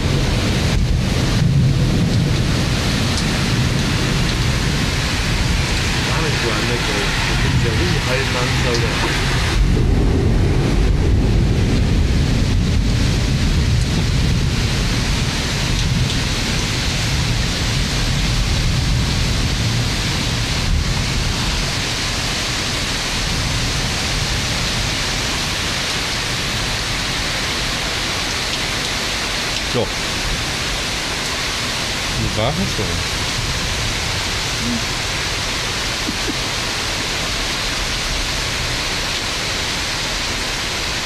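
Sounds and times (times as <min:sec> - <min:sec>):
low thunder rumble: 0:00.0 - 0:27.1
heavy rain pouring: 0:00.0 - 0:41.0.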